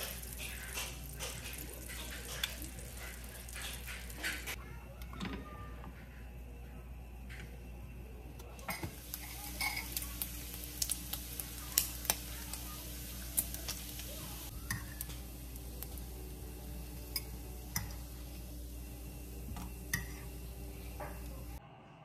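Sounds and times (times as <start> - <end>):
bacon sizzling in a frying pan: 0.0 - 4.6, 8.8 - 21.6.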